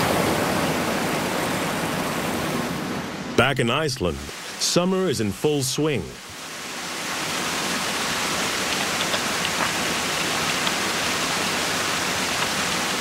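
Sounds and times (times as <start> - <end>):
running water: 3.6 - 13.0.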